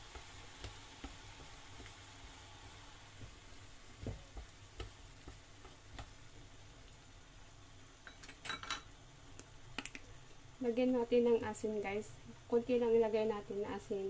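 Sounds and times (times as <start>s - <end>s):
food simmering in a pan: 0.0s - 14.0s.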